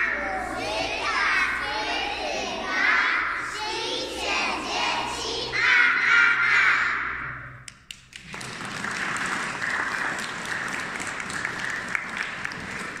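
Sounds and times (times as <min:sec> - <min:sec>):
children singing: 0:00.0 - 0:07.5
applause: 0:07.9 - 0:13.0.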